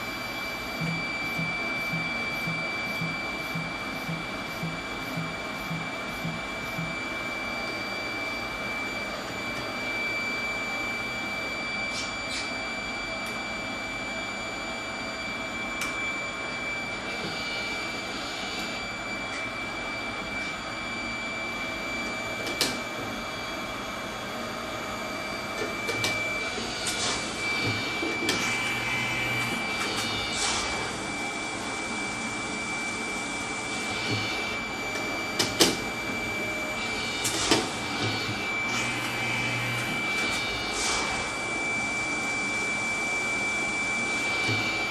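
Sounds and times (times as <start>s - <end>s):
pump hiss with high whine: 0.0s - 44.9s.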